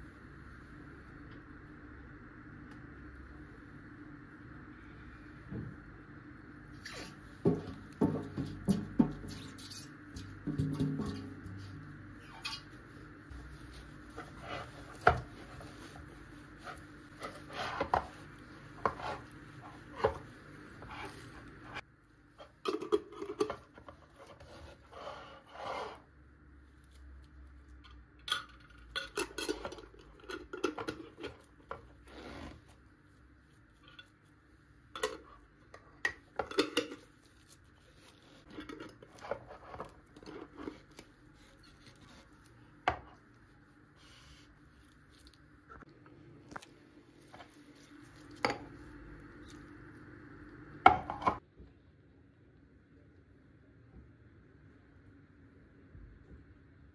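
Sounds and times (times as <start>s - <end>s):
rubbing and scraping: 10.6s - 21.8s.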